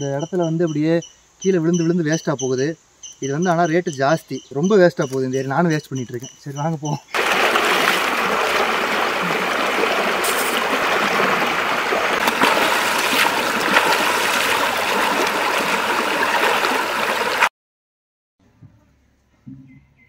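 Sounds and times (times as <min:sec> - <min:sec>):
stream rushing over rocks: 0:07.1 - 0:17.5
water splashing: 0:07.1 - 0:17.5.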